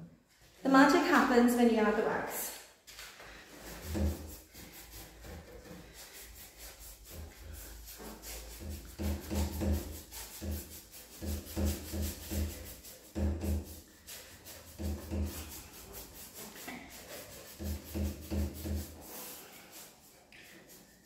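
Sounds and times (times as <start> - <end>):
paintbrush scrubbing on wood: 3.2 - 21.0.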